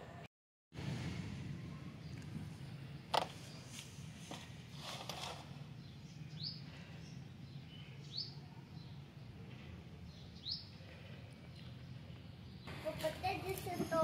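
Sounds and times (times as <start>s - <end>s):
bird chirping: 5.6s - 13.0s.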